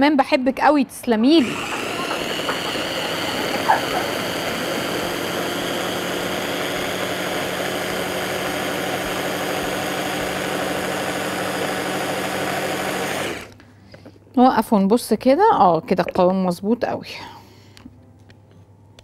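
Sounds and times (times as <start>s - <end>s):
electric hand blender running: 1.4s - 13.6s.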